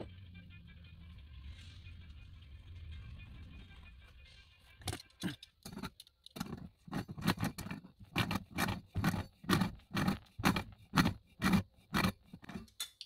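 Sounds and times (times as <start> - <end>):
pliers clacking and scraping on metal: 4.9 - 13.0.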